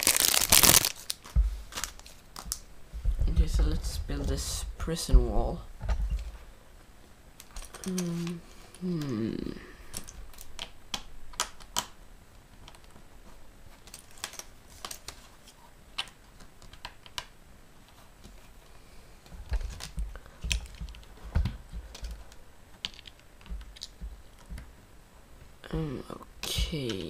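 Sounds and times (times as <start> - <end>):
dull thumps: 2.9 - 4.5.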